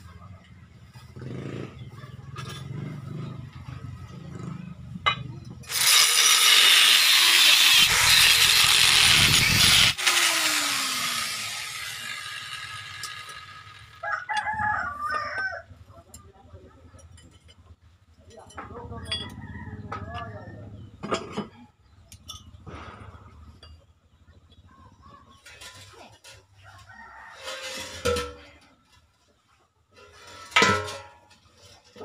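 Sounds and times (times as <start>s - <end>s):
angle grinder cutting steel: 5.6s - 14.0s
grinder spinning down whine: 5.7s - 14.0s
rooster crowing: 14.0s - 15.7s.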